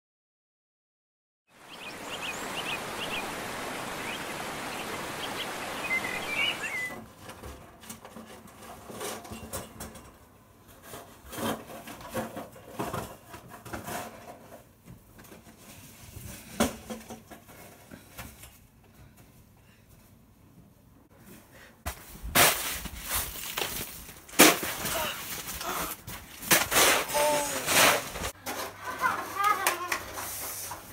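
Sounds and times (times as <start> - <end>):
birds chirping: 1.6 - 7.0
rushing stream: 1.6 - 7.0
snow shovels scraping: 22.3 - 30.8.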